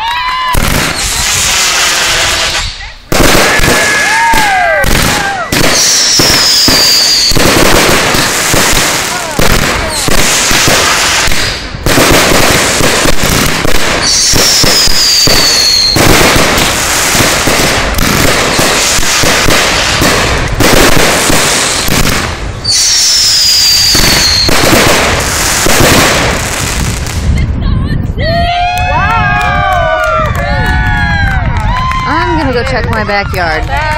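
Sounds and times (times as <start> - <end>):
fireworks crackling and popping: 0.0 - 27.6
falling firework whistle: 0.3 - 7.7, 9.9 - 11.6, 14.0 - 16.2, 22.6 - 24.8.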